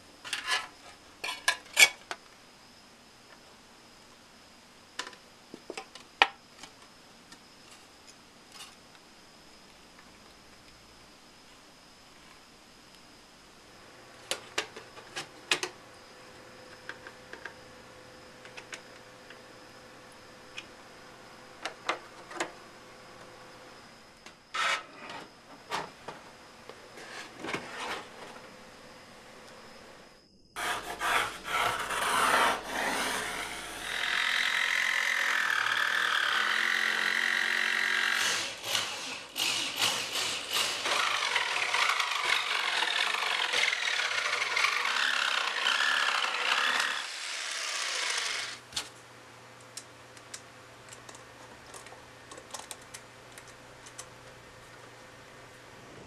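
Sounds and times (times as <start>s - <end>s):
jigsaw cutting wood: 30.6s - 48.6s
small parts clicking: 49.8s - 54.1s.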